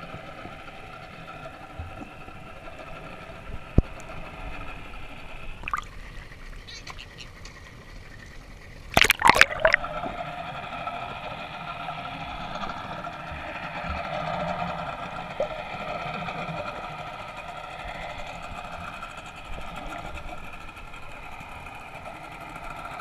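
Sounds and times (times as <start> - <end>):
underwater boat motor hum: 0.0 - 23.0
water splashing over microphone: 5.6 - 6.0, 8.9 - 9.9.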